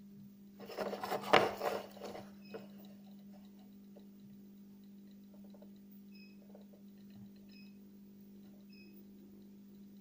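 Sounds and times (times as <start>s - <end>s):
handling rustle and clicks: 0.6s - 3.8s
faint ticks: 2.5s - 7.8s.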